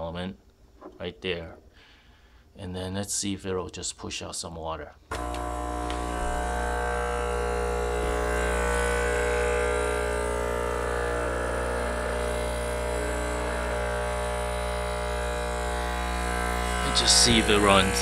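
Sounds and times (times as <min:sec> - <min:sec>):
espresso maker pump humming: 0:05.1 - 0:18.0.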